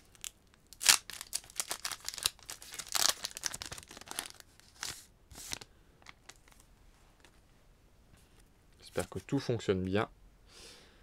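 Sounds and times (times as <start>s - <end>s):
foil wrapper tearing and crinkling: 0.0s - 5.6s.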